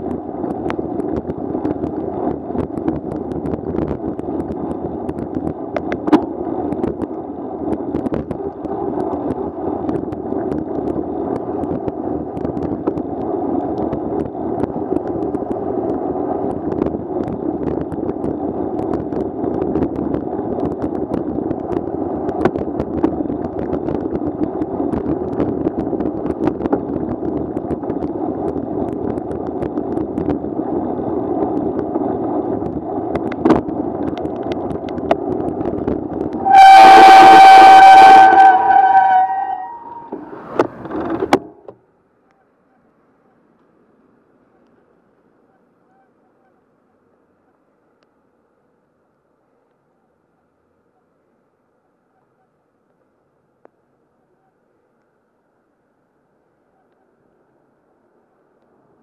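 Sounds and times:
bicycle rolling on wet pavement: 0:00.0 - 0:36.5.

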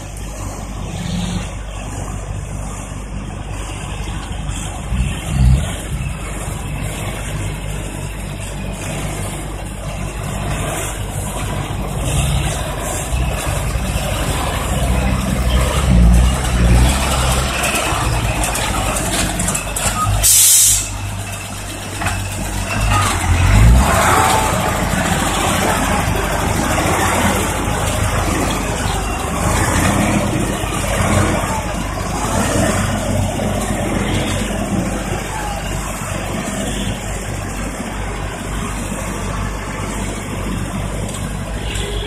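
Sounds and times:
diesel truck engine running: 0:00.0 - 0:42.0
air brake hiss: 0:20.2 - 0:21.0.

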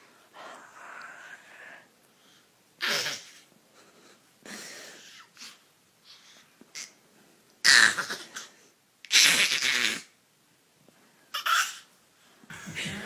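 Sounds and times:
dog sneezing: 0:02.8 - 0:03.4.

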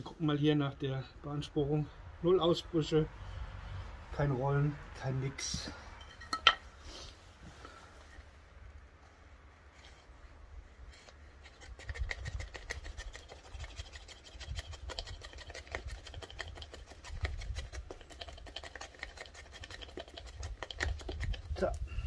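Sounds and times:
knife scraping wood: 0:10.8 - 0:21.6.

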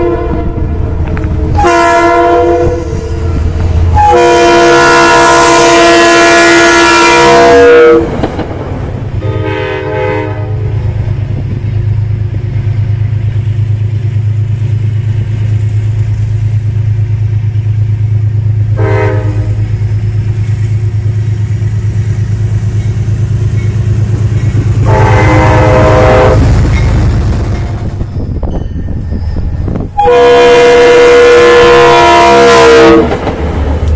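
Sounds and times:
locomotive horn: 0:00.0 - 0:08.2, 0:09.2 - 0:10.8, 0:18.7 - 0:19.8, 0:24.8 - 0:26.6, 0:29.9 - 0:33.2
train drone: 0:00.0 - 0:33.9.

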